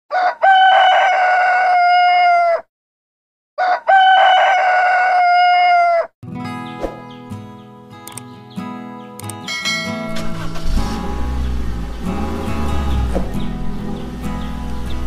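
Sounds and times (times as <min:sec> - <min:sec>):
rooster crowing: 0:00.1 - 0:02.7, 0:03.6 - 0:06.1.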